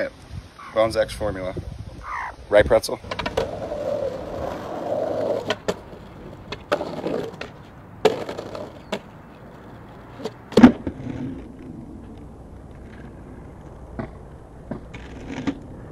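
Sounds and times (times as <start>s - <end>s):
skateboard rolling on asphalt: 2.8s - 15.9s
skateboard clacks and knocks: 3.0s - 11.6s, 13.9s - 15.8s.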